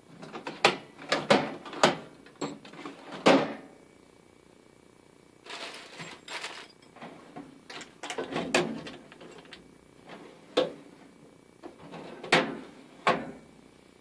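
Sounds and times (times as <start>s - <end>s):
plastic bags rustling: 5.4s - 6.8s
steel toolbox drawers sliding shut: 5.5s - 6.8s.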